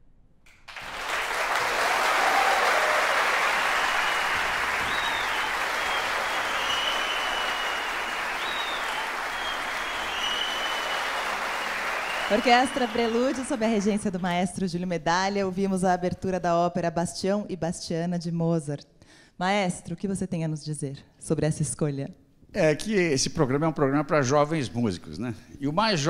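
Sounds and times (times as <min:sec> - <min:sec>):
audience applauding: 0:00.5 - 0:14.5.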